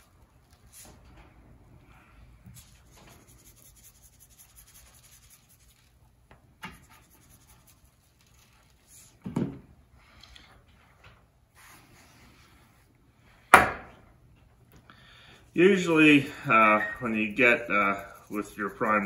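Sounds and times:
seasoning shaken from shaker: 0:02.6 - 0:06.0, 0:15.6 - 0:19.0.

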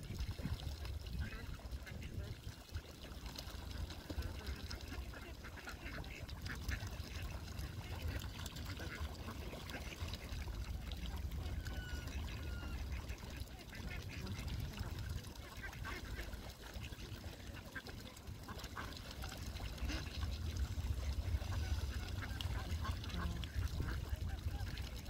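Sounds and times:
ducks calling: 0:04.7 - 0:14.7, 0:18.5 - 0:24.8
low rumble: 0:19.6 - 0:25.0.

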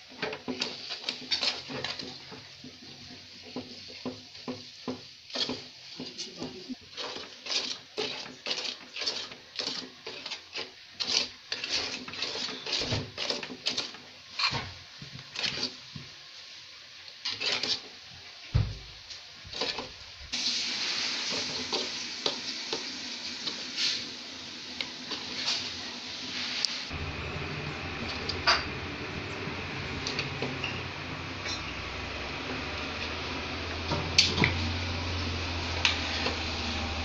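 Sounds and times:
spoon scraping a pan: 0:00.1 - 0:16.1, 0:17.1 - 0:18.2, 0:19.5 - 0:20.0, 0:20.8 - 0:24.1, 0:24.8 - 0:26.8, 0:29.9 - 0:31.9
steady hiss: 0:14.0 - 0:27.0.

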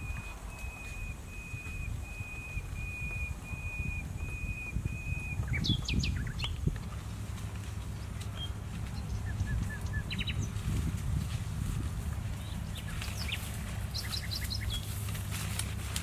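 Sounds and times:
bird whistled notes: 0:00.0 - 0:06.5.

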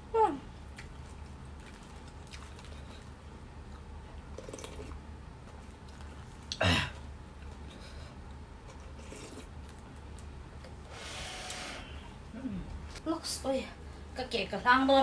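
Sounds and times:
steady low hum: 0:00.0 - 0:15.0
faint chewing: 0:00.7 - 0:10.8.

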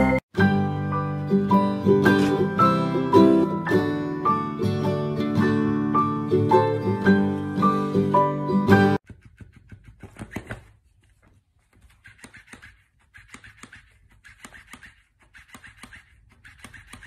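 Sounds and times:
cat scratching on rug: 0:09.0 - 0:17.0
toy slapping on floor: 0:09.0 - 0:17.0.

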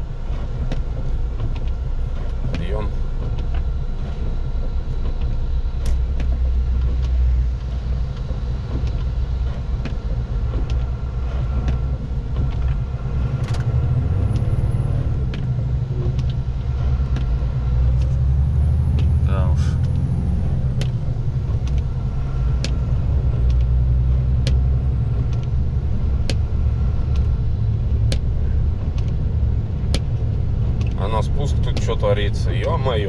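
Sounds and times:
truck engine and road drone: 0:00.0 - 0:33.0.

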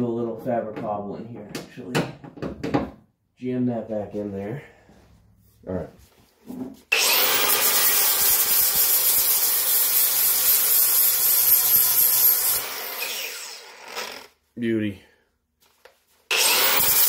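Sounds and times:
grinder disc spinning down: 0:06.9 - 0:14.3, 0:16.3 - 0:17.0
angle grinder grinding: 0:06.9 - 0:14.4, 0:16.3 - 0:17.0.

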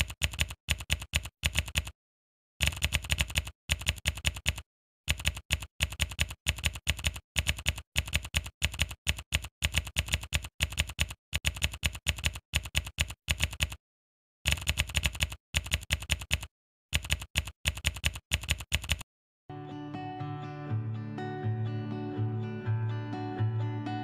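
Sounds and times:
keyboard keys clicking: 0:00.0 - 0:01.9, 0:02.6 - 0:13.8, 0:14.5 - 0:19.0.

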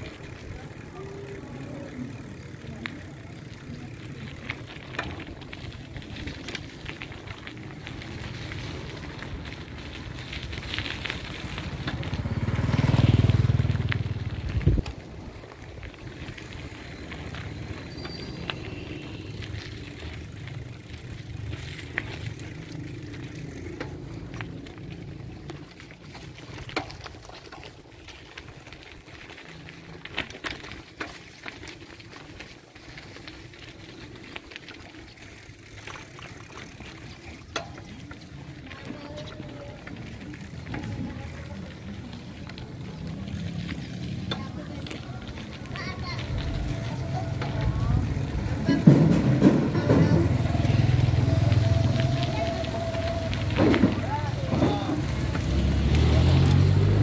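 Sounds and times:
motorcycle passing by: 0:07.7 - 0:26.6, 0:40.3 - 0:57.0.

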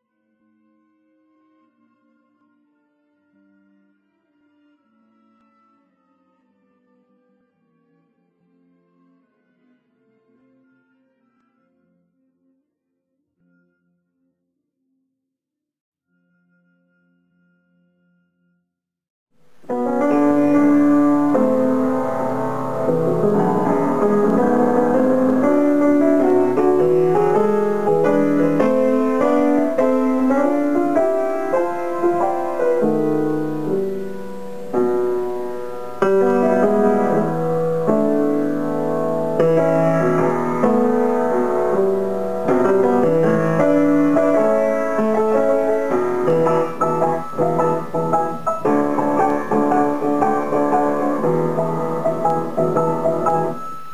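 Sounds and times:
solo grand piano: 0:19.4 - 0:53.9.

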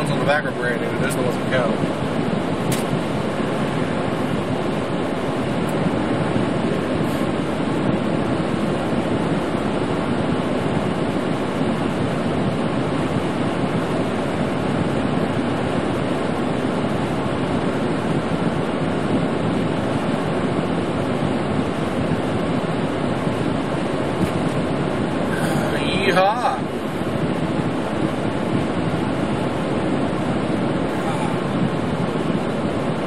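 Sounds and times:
defroster fan blowing: 0:00.0 - 0:33.0
truck engine: 0:00.0 - 0:33.0.

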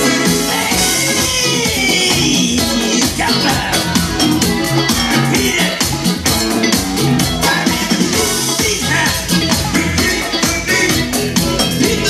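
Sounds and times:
dance music with steady beat: 0:00.0 - 0:12.0.

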